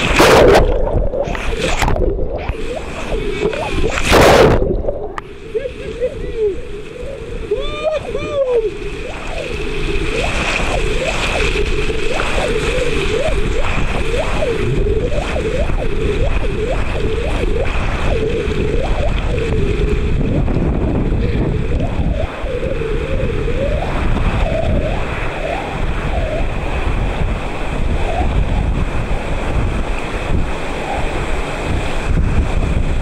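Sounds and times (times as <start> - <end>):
river white water rushing: 0.0 - 20.2
short water gurgles: 0.0 - 33.0
wind buffeting microphone: 0.0 - 33.0.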